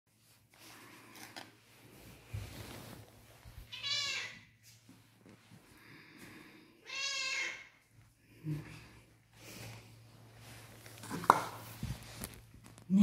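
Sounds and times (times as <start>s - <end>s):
cat meowing: 3.6s - 4.5s, 6.8s - 7.7s.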